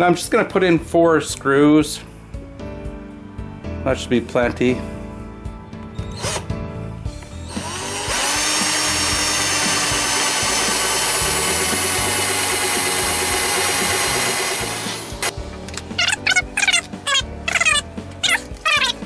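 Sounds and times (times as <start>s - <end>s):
power drill drilling into wood: 6.1s - 6.5s, 7.4s - 15.3s.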